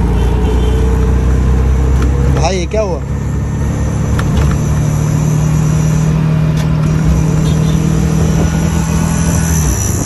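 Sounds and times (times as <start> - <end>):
road rumble: 0.0 - 10.0
small engine humming: 3.0 - 10.0.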